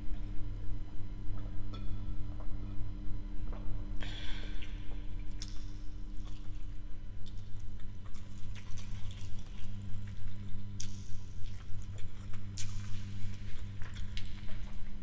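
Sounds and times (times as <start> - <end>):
steady low hum: 0.0 - 15.0
wet chewing and lip-smacking: 4.5 - 15.0.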